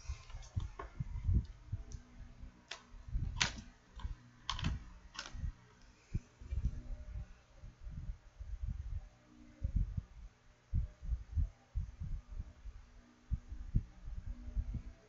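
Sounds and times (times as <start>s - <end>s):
typing on computer keyboard: 3.4s - 5.4s.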